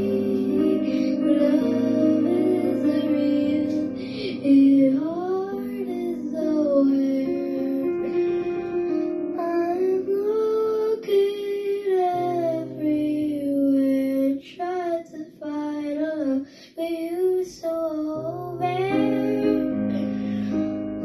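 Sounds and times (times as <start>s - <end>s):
instrumental accompaniment: 0.0s - 10.9s
girl singing: 0.0s - 21.0s.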